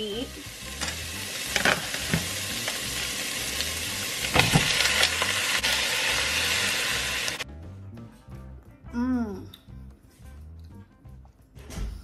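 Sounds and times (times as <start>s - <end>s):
meat sizzling in oil: 0.0s - 7.4s.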